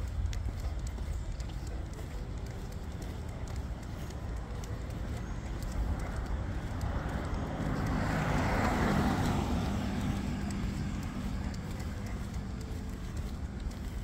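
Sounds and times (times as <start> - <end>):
car driving past: 6.6 - 14.0.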